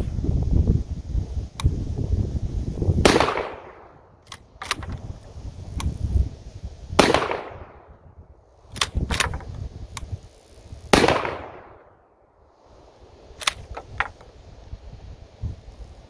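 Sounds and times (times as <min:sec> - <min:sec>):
shotgun firing: 0:03.0 - 0:03.8, 0:07.0 - 0:07.8, 0:10.9 - 0:11.7
shotgun pump racking clacks: 0:04.3 - 0:05.0, 0:08.7 - 0:10.1, 0:13.4 - 0:14.2.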